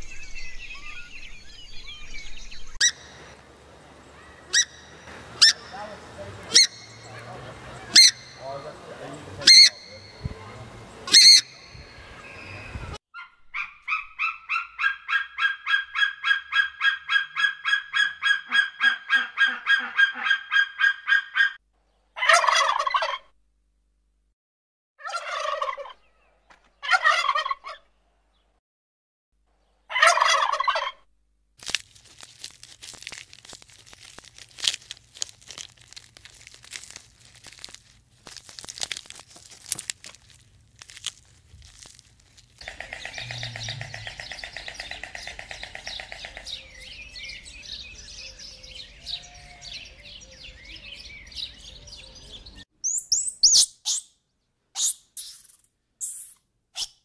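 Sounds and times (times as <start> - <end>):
turkeys gobbling: 4.2 - 8.8, 9.4 - 10.1, 13.2 - 21.6, 22.2 - 23.3, 25.0 - 26.1, 26.8 - 27.9, 29.9 - 31.0, 42.6 - 46.8
monkeys chirping: 4.2 - 10.2, 11.0 - 12.3, 42.6 - 47.5, 52.8 - 54.1.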